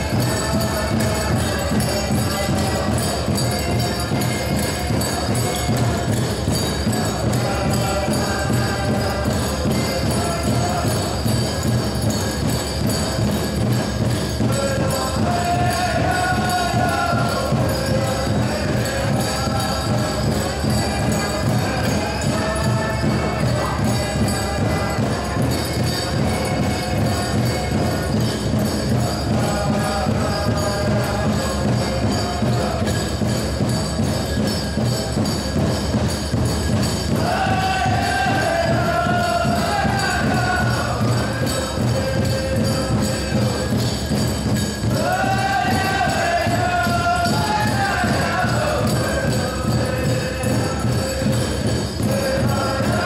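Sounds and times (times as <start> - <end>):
steady drumbeat: 0.0 - 53.0
group of singers chanting: 14.1 - 33.4, 37.1 - 43.2, 44.8 - 53.0.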